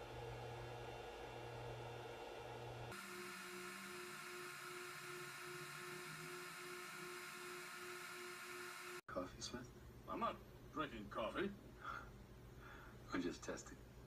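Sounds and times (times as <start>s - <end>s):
pulsing electronic hum: 0.0s - 9.0s.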